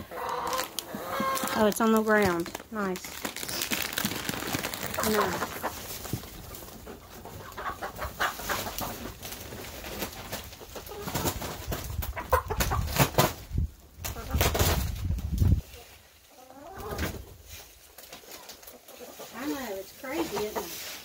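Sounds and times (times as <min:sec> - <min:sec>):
hens clucking: 0:00.0 - 0:01.8, 0:04.6 - 0:13.4, 0:14.0 - 0:14.8, 0:15.7 - 0:21.0
rustling of shavings and bag: 0:00.2 - 0:06.8.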